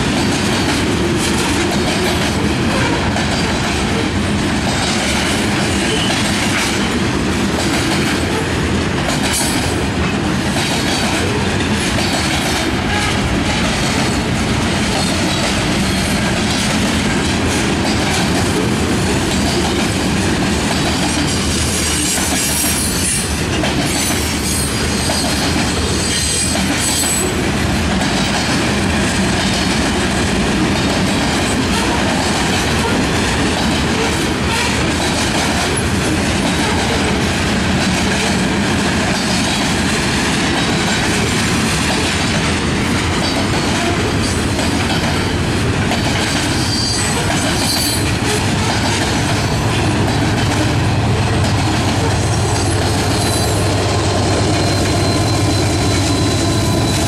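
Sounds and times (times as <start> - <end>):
train wheels rumbling on rails: 0.0 - 57.0
wheels clacking over rail joints: 0.0 - 57.0
high wheel squeal: 46.6 - 48.4, 52.0 - 57.0.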